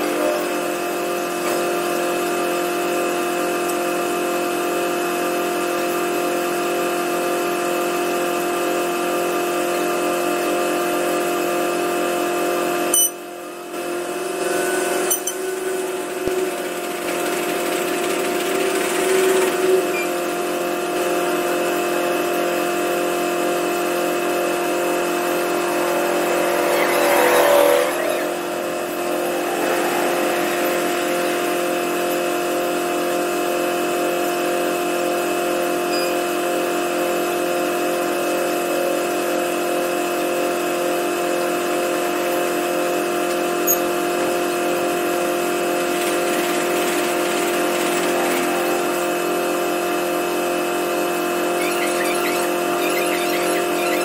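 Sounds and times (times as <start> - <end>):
diesel train engines idling: 27.9 - 33.9.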